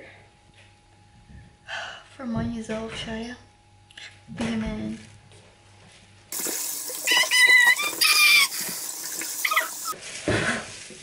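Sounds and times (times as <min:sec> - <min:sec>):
water running into sink: 0:06.3 - 0:10.0.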